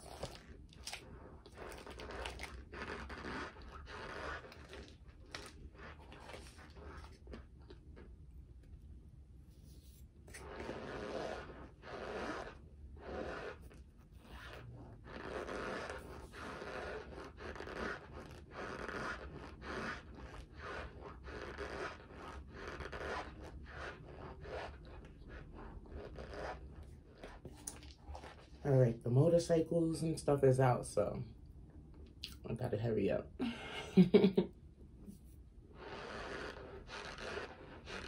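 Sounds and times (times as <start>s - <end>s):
scratchy crunching bites: 0.0s - 7.4s.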